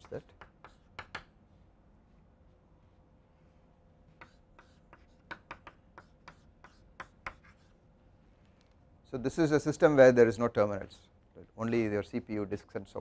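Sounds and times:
chalk tapping and scraping: 0.0 - 3.0, 4.1 - 7.8.

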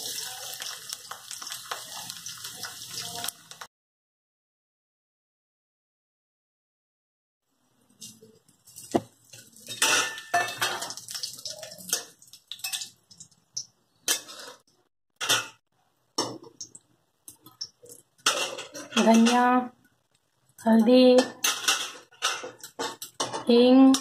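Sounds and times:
frying in hot oil: 0.0 - 3.7, 7.5 - 24.0
metal spatula scraping a pan: 14.1 - 15.6.

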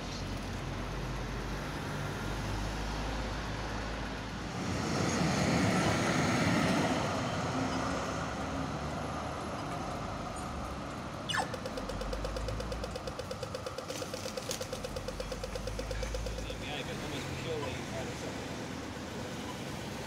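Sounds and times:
low hum of waiting vehicles: 0.0 - 20.0
tram passing: 0.8 - 11.2, 16.0 - 20.0
pedestrian crossing laser chirp: 4.2 - 20.0
crossing signal rapid ticking: 10.9 - 20.0.

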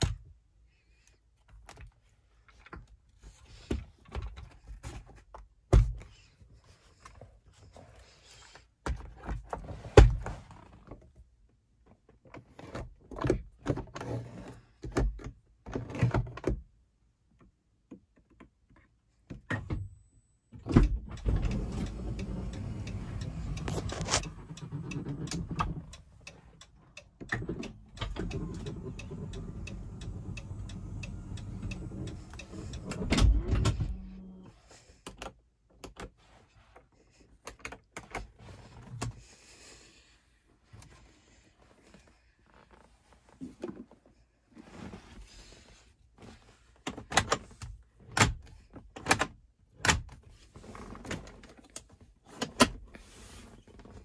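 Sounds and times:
clicks and knocks of controls: 20.6 - 34.4, 37.2 - 39.3, 46.8 - 52.9.

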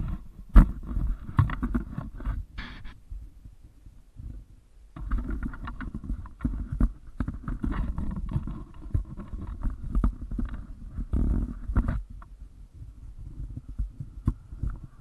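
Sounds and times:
camera handling knocks and rubbing: 0.0 - 3.0.

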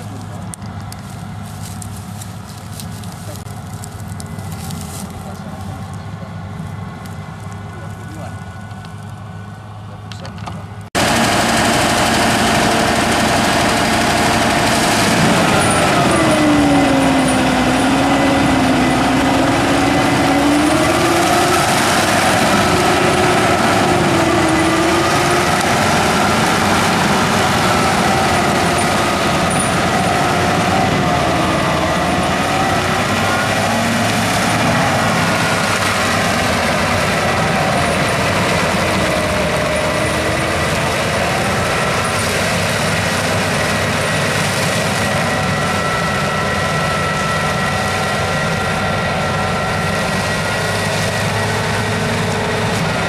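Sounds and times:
tillage implement churning soil: 0.0 - 9.1, 11.0 - 53.0
tractor engine running under load: 0.0 - 53.0.

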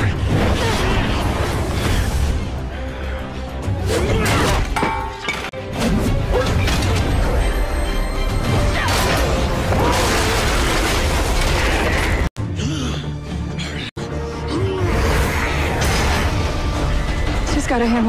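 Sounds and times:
soundtrack music: 0.0 - 18.0
impacts and blows: 14.8 - 18.0.

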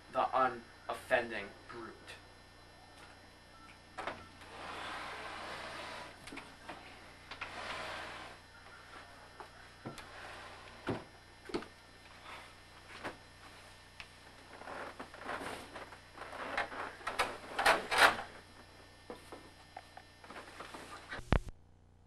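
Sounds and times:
faint steady hum: 0.0 - 22.0
loud scrapes: 4.5 - 6.2, 7.4 - 8.4.

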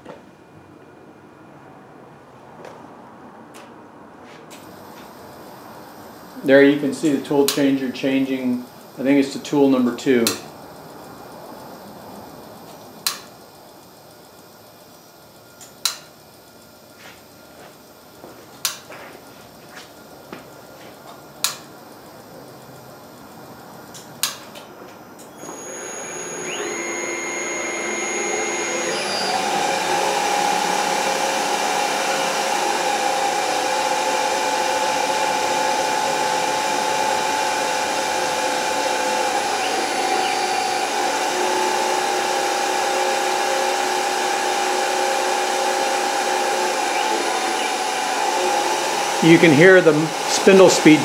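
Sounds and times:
lathe spindle motor whine: 4.6 - 18.4, 19.0 - 51.0
sharp clicks: 7.4 - 7.7, 10.2 - 10.5, 12.7 - 13.3, 15.6 - 16.1, 18.6 - 18.9, 23.9 - 24.6.

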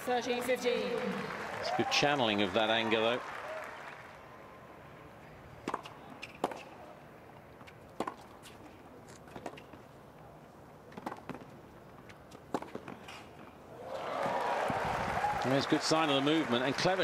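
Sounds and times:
racket hitting tennis ball: 5.6 - 6.8, 7.6 - 9.8, 10.9 - 13.5
tennis ball bouncing: 5.6 - 6.8, 7.4 - 9.9, 10.8 - 13.6.

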